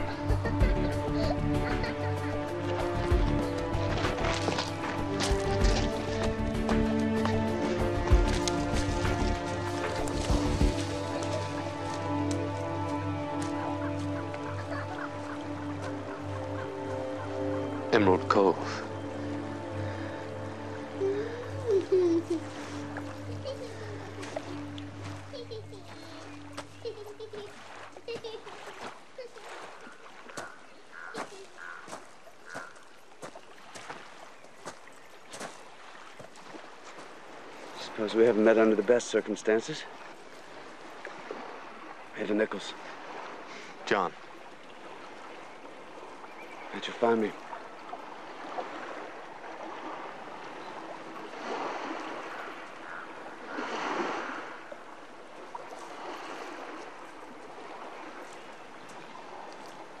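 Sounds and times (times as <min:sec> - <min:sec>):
waves washing onto gravel: 0:01.8 - 0:21.6, 0:22.2 - 1:00.0
footsteps on gravel: 0:02.8 - 0:14.4, 0:30.3 - 0:37.2.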